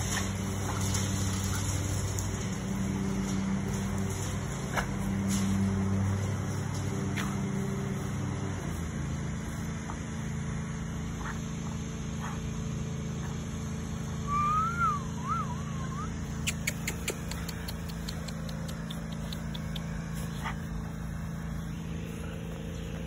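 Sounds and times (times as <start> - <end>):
low mechanical hum: 0.0 - 23.0
puppy whining: 14.3 - 19.8.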